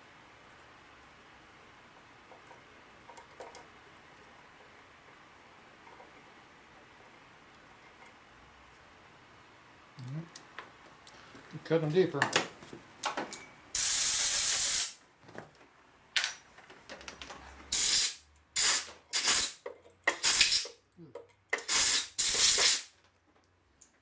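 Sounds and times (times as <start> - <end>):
air blow gun hissing blasts: 13.8 - 15.0, 17.7 - 19.6, 20.2 - 20.7, 21.6 - 22.9.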